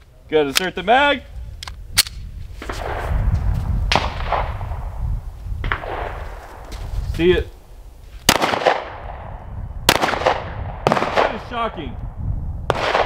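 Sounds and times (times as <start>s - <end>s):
gunshots: 8.3s - 9.2s, 9.9s - 11.5s, 12.7s - 13.0s.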